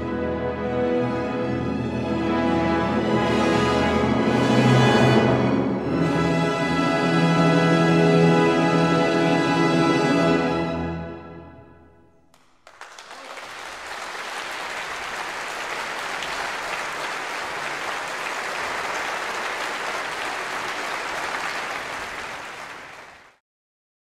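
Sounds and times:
audience applauding: 12.3s - 23.4s.

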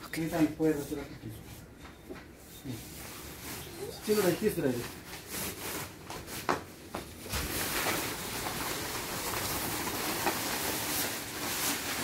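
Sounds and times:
fabric cover rustling: 2.5s - 12.0s.

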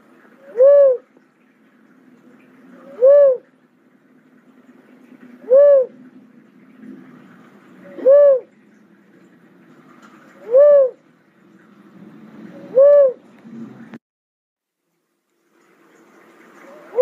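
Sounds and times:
cuckoo-dove cooing: 0.3s - 1.1s, 2.7s - 3.5s, 5.4s - 6.2s, 7.8s - 8.6s, 10.2s - 11.1s, 12.5s - 13.4s, 16.6s - 17.0s.

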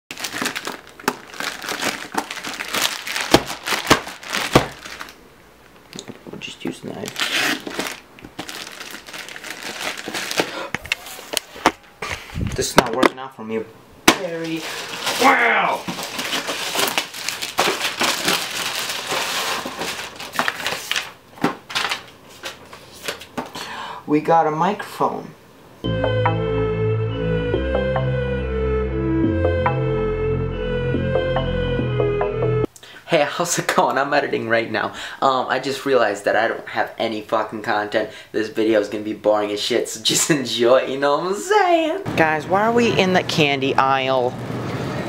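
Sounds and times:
plastic bag crinkling: 0.1s - 5.2s, 6.8s - 11.6s, 14.2s - 22.7s.

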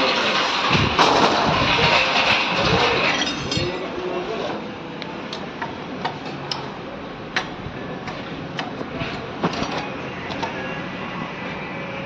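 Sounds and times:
workshop background noise: 0.0s - 12.0s.

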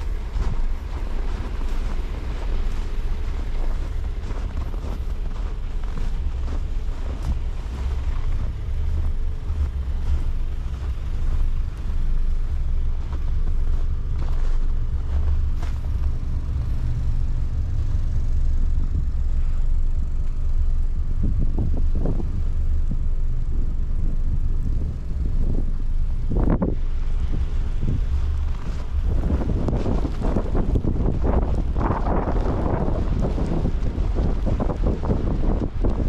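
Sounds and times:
cars idling in traffic: 0.0s - 36.0s
wind buffeting microphone: 0.0s - 36.0s.

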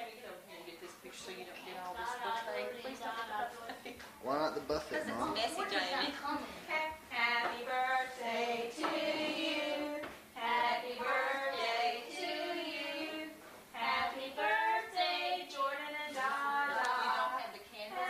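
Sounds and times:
women and children singing: 5.5s - 18.0s.

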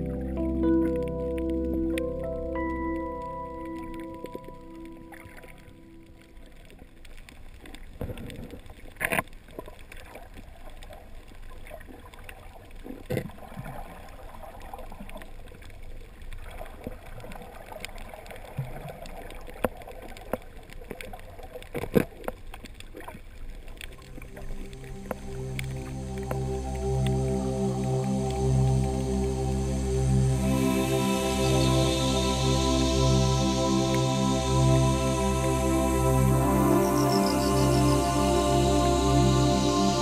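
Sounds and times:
muffled underwater water noise: 0.0s - 40.0s.

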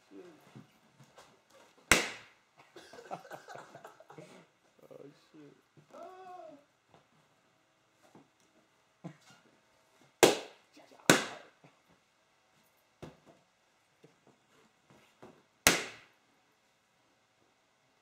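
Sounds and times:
balloons popping: 1.9s - 2.4s, 10.2s - 11.5s, 15.6s - 16.1s.

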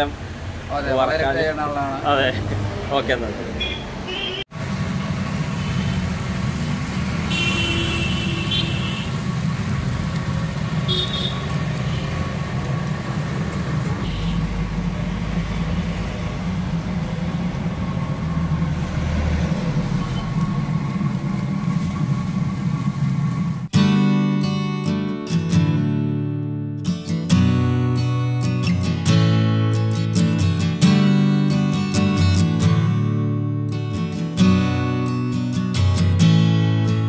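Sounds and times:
oil sizzling and bubbling: 4.6s - 23.7s
continuous low rumble: 9.0s - 23.7s.

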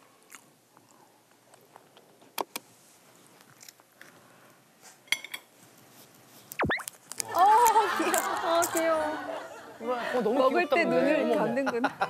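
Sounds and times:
chewing lettuce crunches: 3.4s - 4.2s, 6.7s - 8.8s.

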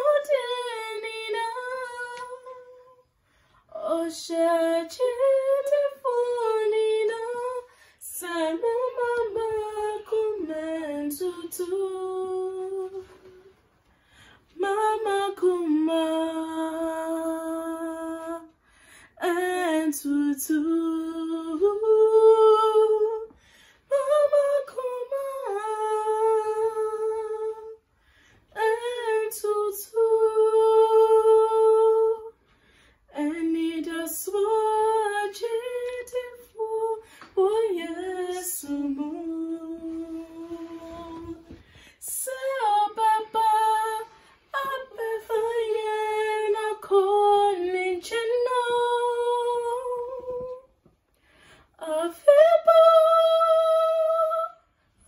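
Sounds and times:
woman singing a cappella: 0.0s - 50.9s, 51.6s - 54.8s.

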